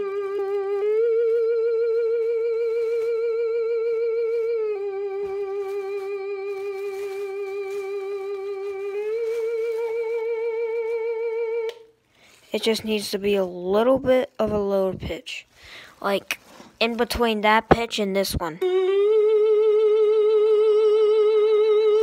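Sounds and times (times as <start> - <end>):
wavering electronic tone with vibrato: 0.0 - 11.7, 18.6 - 22.0.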